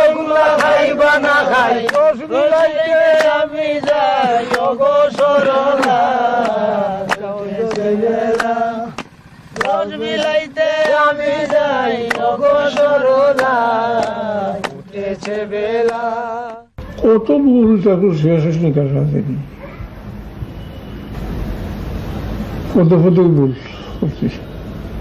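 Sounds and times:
men singing folk song: 0:00.0 - 0:16.7.

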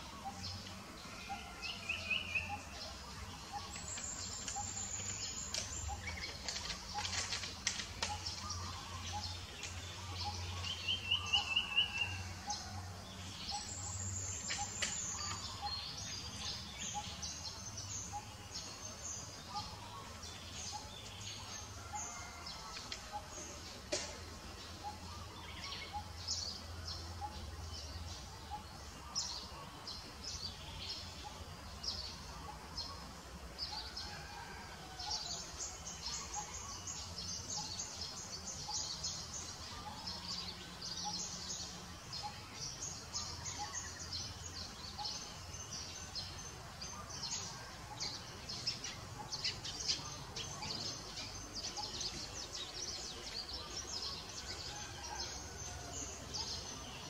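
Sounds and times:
birds chirping: 0:00.0 - 0:57.0.

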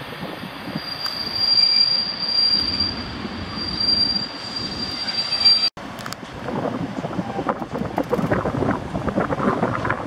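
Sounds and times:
train rumbling: 0:00.0 - 0:10.0
train brakes squealing: 0:00.6 - 0:05.7.

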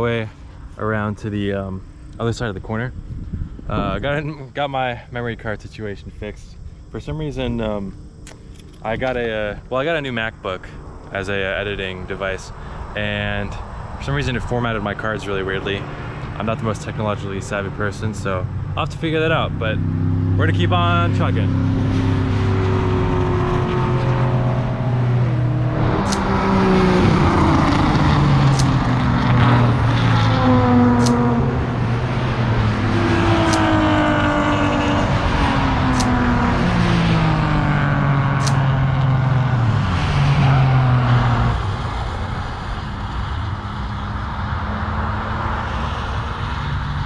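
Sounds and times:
racing car engines passing: 0:10.6 - 0:47.0.

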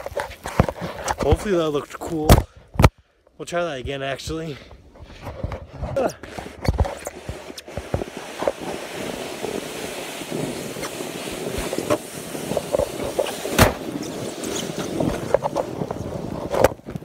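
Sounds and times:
snowboard scraping over snow: 0:05.1 - 0:17.0.

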